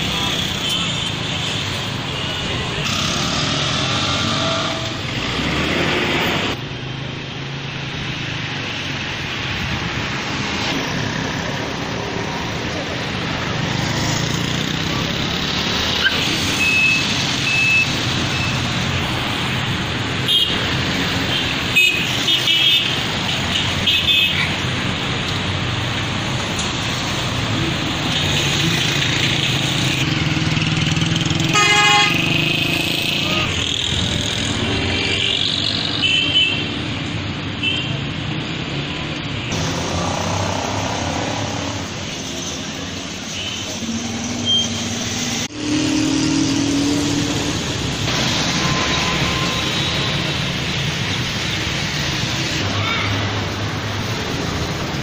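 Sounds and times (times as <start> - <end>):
road traffic noise: 0.0 - 55.0
vehicle horns tooting: 31.4 - 32.4.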